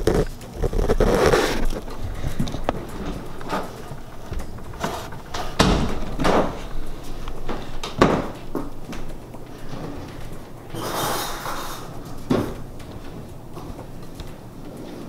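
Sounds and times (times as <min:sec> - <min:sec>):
knocks and thumps: 0:00.0 - 0:13.2
rustling: 0:00.0 - 0:15.0.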